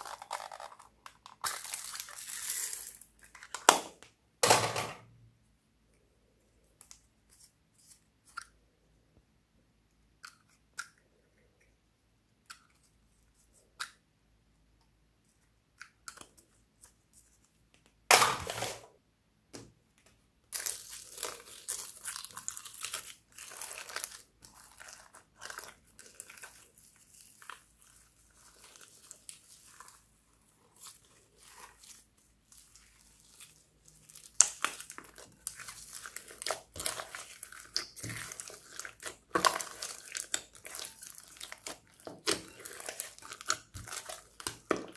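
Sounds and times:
slime crunchy crackle: 20.6 - 30.0, 30.7 - 44.9.

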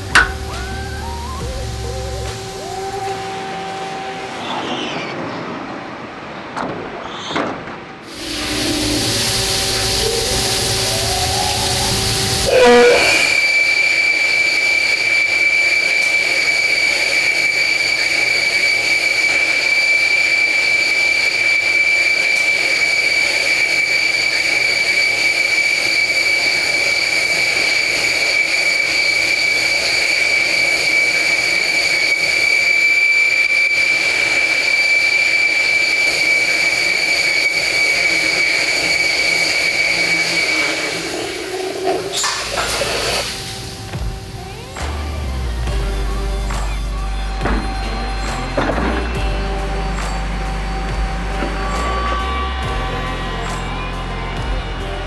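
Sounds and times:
high-pitched drill whine: 0.0 - 5.1, 8.1 - 55.0
coolant spray hiss: 8.1 - 14.9, 22.2 - 52.6.

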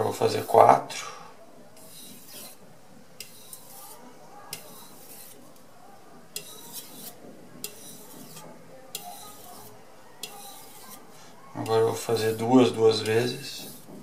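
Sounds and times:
knife blade scraping on whetstone: 1.8 - 2.6, 3.2 - 5.4, 6.4 - 14.0.

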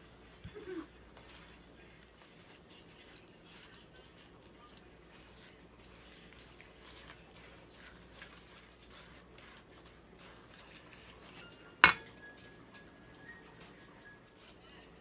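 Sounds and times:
knock on steel bowl ringing: 11.8 - 12.1
spatula scraping in a bowl: 11.8 - 12.1.

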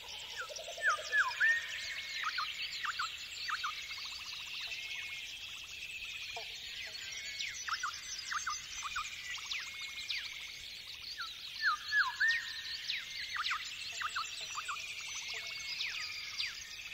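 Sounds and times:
birds singing in dawn chorus: 0.0 - 16.9.

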